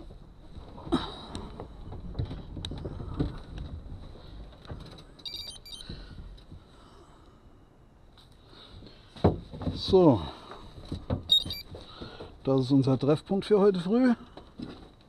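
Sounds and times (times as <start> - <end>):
high chirps: 5.3 - 5.8, 11.3 - 11.6.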